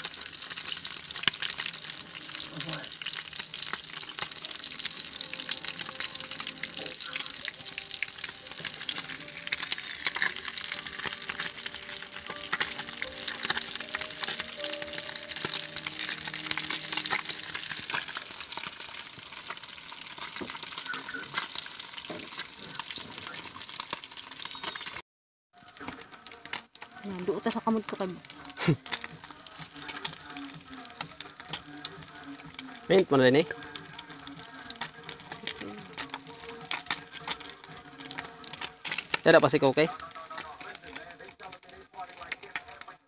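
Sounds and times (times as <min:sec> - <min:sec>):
fish sizzling in hot oil: 0:00.0 - 0:43.0.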